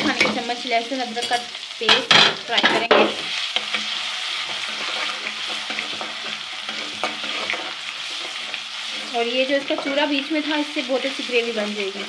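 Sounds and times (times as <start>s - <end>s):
paste sizzling in hot oil: 0.0s - 12.0s
spoon tapping pan: 9.6s - 10.3s.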